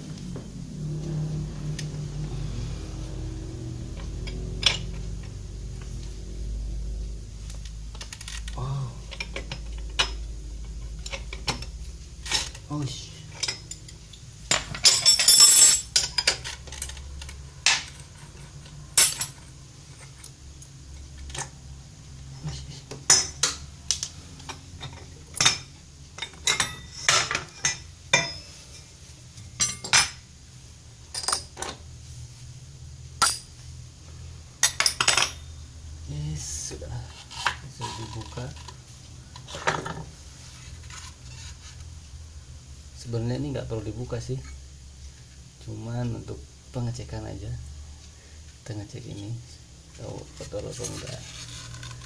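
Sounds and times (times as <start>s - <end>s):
metal parts clinking: 7.9s - 12.7s, 13.3s - 19.4s, 21.3s - 21.6s, 24.8s - 28.5s, 31.1s - 31.7s, 33.2s - 33.5s.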